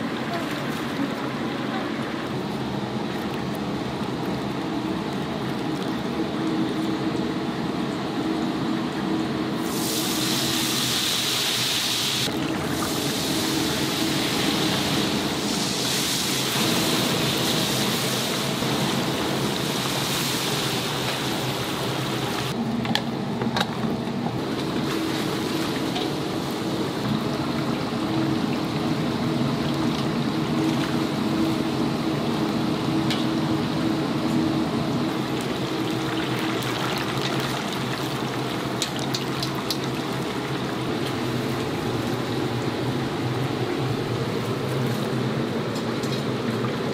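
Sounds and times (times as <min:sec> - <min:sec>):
steady hum: 0:00.0 - 0:46.9
oil sizzling: 0:09.6 - 0:22.6.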